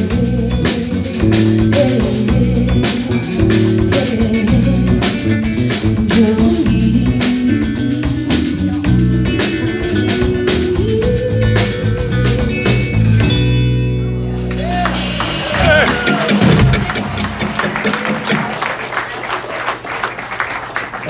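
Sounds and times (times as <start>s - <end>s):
woman singing: 0.0s - 12.8s
electric guitar: 0.0s - 18.7s
bass guitar: 0.0s - 18.9s
drum kit: 0.0s - 19.3s.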